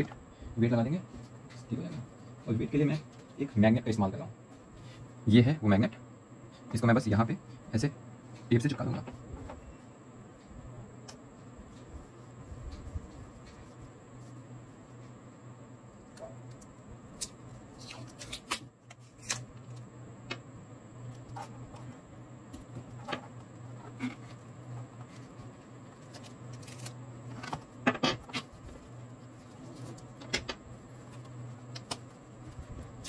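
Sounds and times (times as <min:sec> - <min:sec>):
steady low hum: 0:00.0 - 0:33.0
hands handling cardboard and tape: 0:11.0 - 0:15.2, 0:16.1 - 0:20.4, 0:21.0 - 0:33.0.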